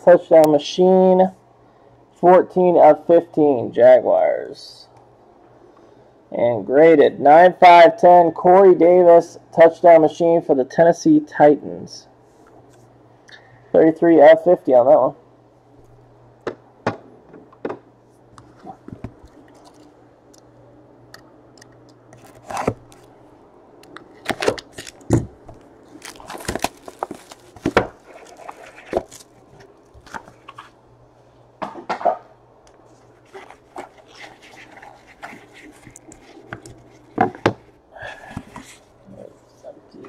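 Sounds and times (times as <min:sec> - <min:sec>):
steady low hum: 0:00.0 - 0:40.0
cardboard boxes handled and opened: 0:26.0 - 0:30.8.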